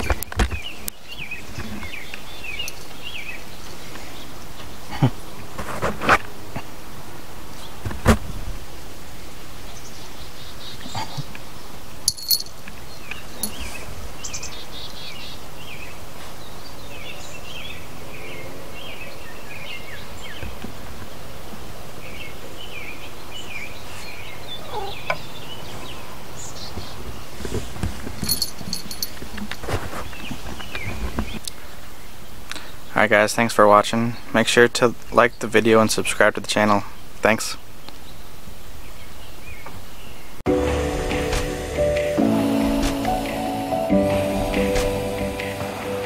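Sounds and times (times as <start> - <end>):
small birds chirping: 0.0 - 5.5, 9.2 - 27.4, 30.0 - 40.4.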